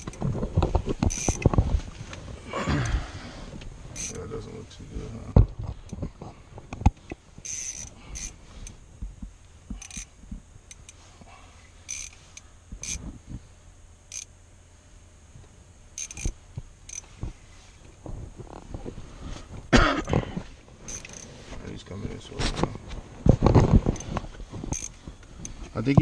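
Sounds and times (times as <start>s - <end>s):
fishing reel drag buzzing: 1.0s - 1.5s, 3.9s - 4.3s, 7.4s - 8.8s, 9.8s - 11.1s, 11.8s - 13.0s, 14.1s - 14.4s, 15.9s - 17.8s, 20.8s - 21.4s, 24.7s - 25.8s.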